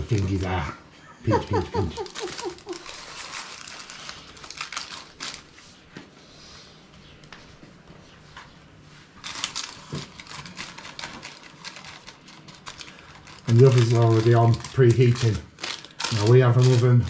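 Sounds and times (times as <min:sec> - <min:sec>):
paper cases rustling: 0:09.2 - 0:17.0.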